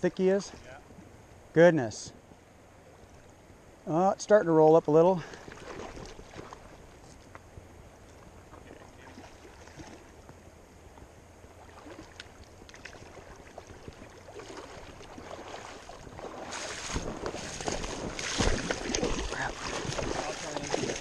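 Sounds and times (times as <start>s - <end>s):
river water lapping on gravel: 4.9s - 7.4s, 8.0s - 10.3s, 11.0s - 21.0s.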